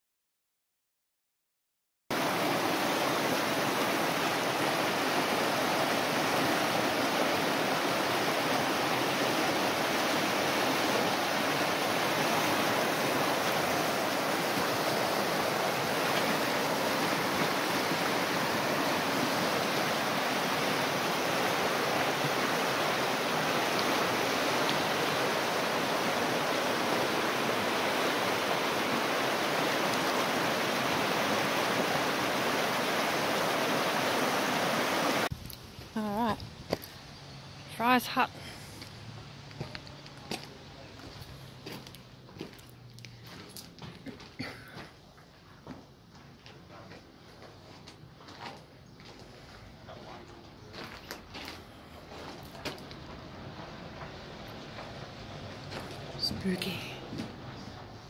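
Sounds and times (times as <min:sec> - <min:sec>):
river water rushing over a sill: 0:02.1 - 0:35.3.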